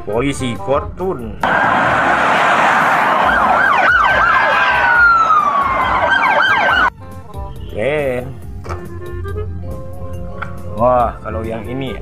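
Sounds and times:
police siren yelp and wail: 1.4 - 6.9
steady rushing noise: 1.4 - 6.9.

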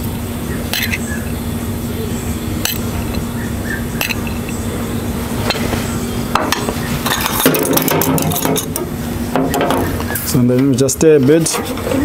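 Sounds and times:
steady low hum: 0.0 - 12.0
metal spoon clinking on plate and pot: 0.7 - 1.0, 2.6 - 3.2, 4.0 - 4.6, 7.1 - 8.8.

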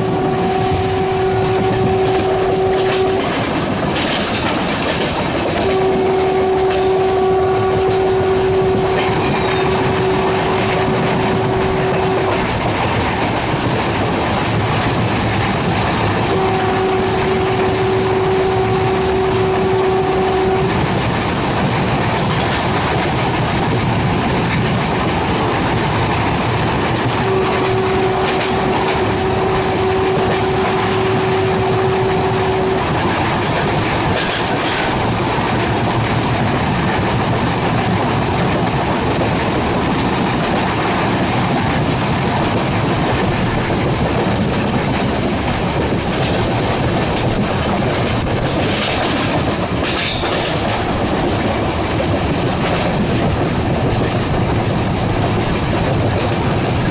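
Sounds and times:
train horn blast: 0.0 - 21.3, 25.3 - 36.4
train wheels rumbling on rails: 0.0 - 56.9.

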